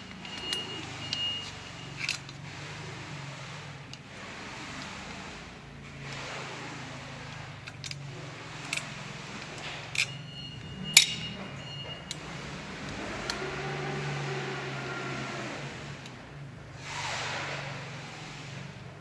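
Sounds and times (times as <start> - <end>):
metal clinks and taps: 9.9 - 12.2.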